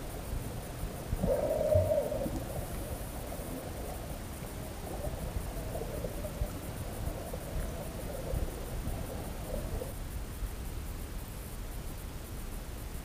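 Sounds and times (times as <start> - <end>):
underwater rumble of moving water: 0.1 - 10.4.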